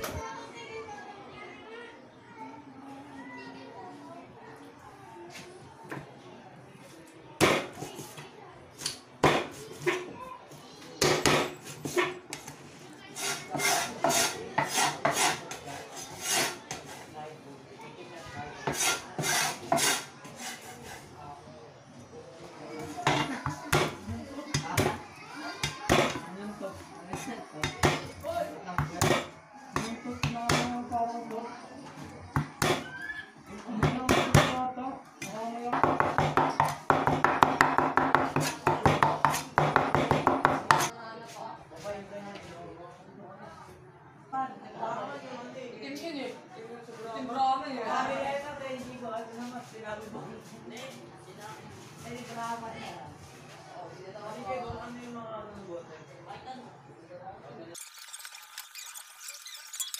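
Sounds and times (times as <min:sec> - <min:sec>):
rasping blade strokes: 0:13.2 - 0:16.6, 0:18.7 - 0:21.0.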